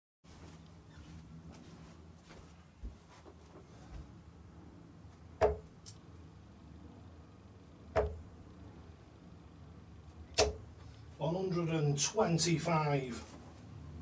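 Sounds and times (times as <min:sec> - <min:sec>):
darts thudding into a dartboard: 0:05.4 - 0:05.7, 0:08.0 - 0:08.2, 0:10.4 - 0:10.6.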